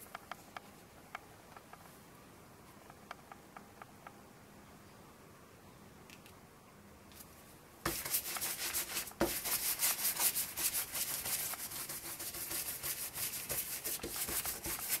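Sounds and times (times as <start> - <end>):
stencil brush scrubbing paper: 7.9 - 15.0.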